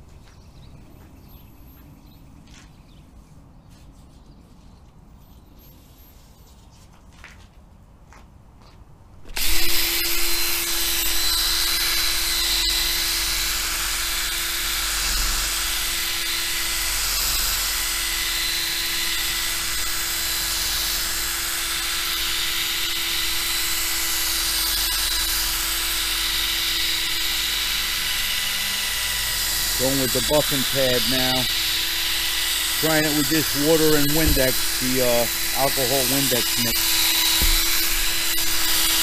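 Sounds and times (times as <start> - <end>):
electric drill running: 9.2 - 39.0.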